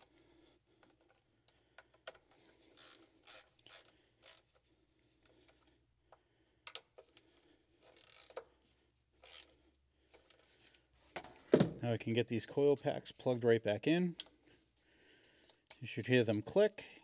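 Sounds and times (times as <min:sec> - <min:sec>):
hand tools clicking and scraping: 0:00.8 - 0:05.7, 0:06.7 - 0:08.6, 0:09.2 - 0:11.4.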